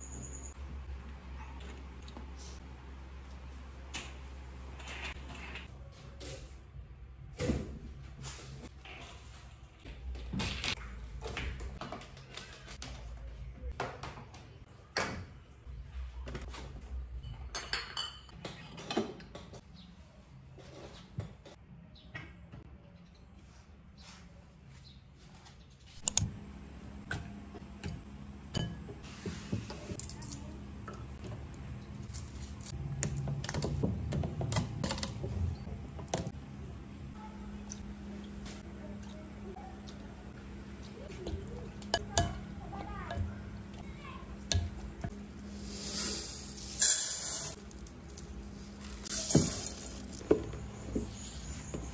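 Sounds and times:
dishes clinking: 0:17.2 - 0:19.6.

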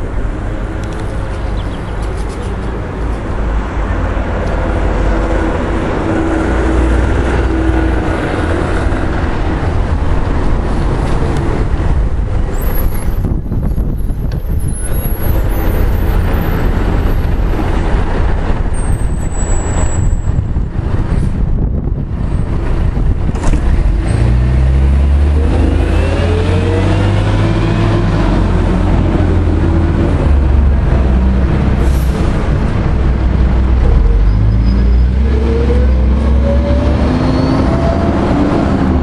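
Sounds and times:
bus engine rumble: 0:00.0 - 0:39.0
high squeal falling in pitch: 0:36.4 - 0:38.0.

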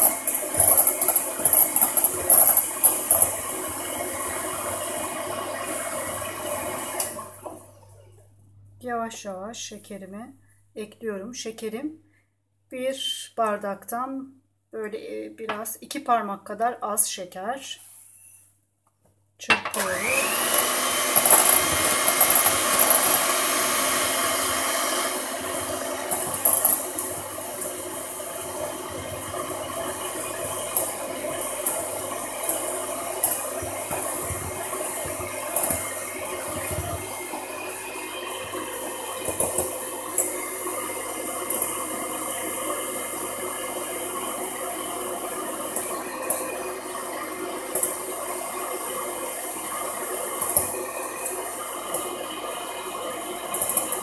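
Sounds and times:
electric hand mixer running: 0:00.0 - 0:07.9, 0:19.7 - 0:54.0.

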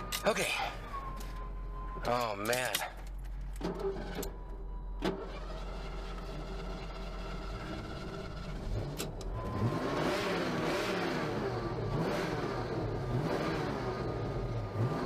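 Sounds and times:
car engine revving: 0:05.1 - 0:15.0.

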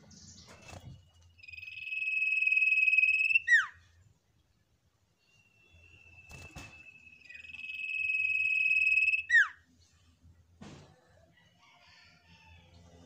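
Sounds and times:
bird whistling: 0:01.4 - 0:03.8, 0:05.8 - 0:09.6.

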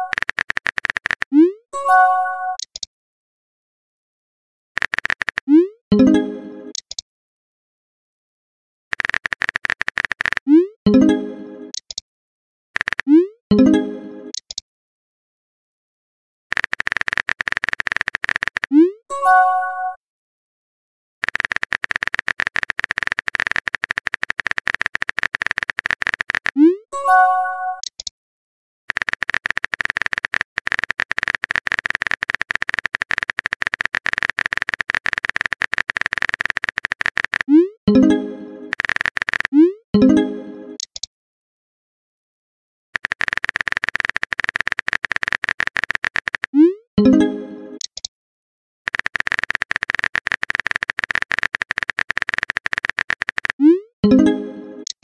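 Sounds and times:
phone keyboard clicking: 0:00.0 - 0:01.4, 0:02.6 - 0:02.9, 0:04.8 - 0:05.5, 0:06.7 - 0:07.0, 0:08.9 - 0:10.5, 0:12.8 - 0:13.1, 0:14.3 - 0:14.6, 0:16.5 - 0:18.8, 0:21.2 - 0:26.6, 0:27.8 - 0:28.1, 0:28.9 - 0:37.5, 0:38.7 - 0:39.6, 0:40.8 - 0:41.1, 0:43.0 - 0:46.6, 0:47.8 - 0:48.1, 0:48.9 - 0:53.6
message chime: 0:37.9 - 0:38.7, 0:54.0 - 0:54.8.

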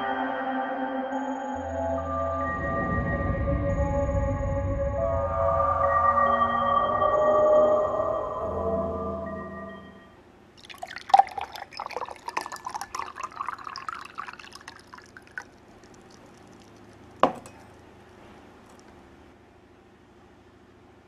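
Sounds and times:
liquor pouring into glass: 0:10.6 - 0:17.7.

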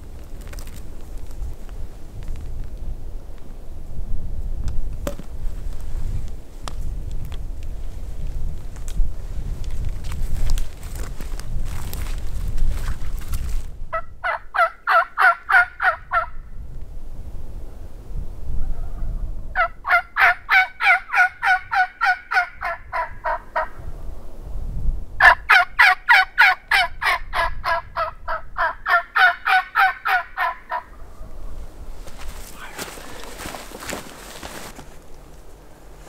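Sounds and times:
wild turkey yelping: 0:13.9 - 0:16.3, 0:19.6 - 0:23.7, 0:25.2 - 0:31.3.

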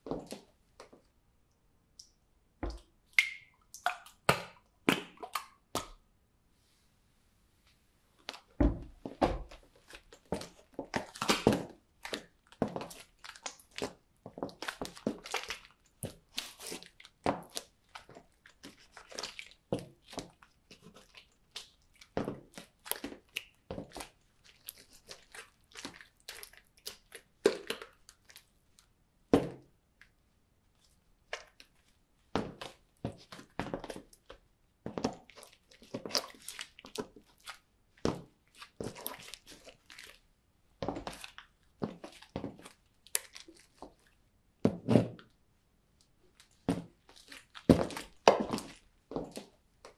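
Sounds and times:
slime squelching and crackling: 0:09.8 - 0:28.9, 0:35.0 - 0:40.3, 0:40.9 - 0:44.2, 0:46.3 - 0:49.9.

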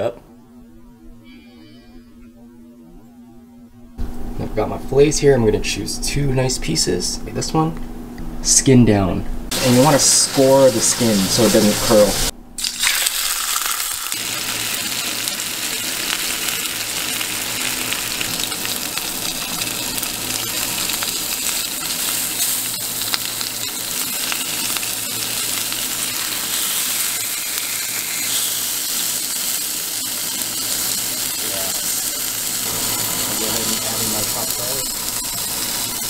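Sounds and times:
fish sizzling in hot oil: 0:09.5 - 0:36.0.

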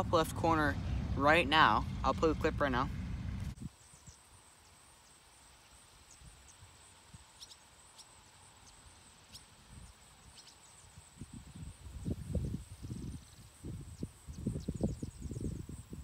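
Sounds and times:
low wind rumble on microphone: 0:00.0 - 0:04.2, 0:09.6 - 0:16.0.

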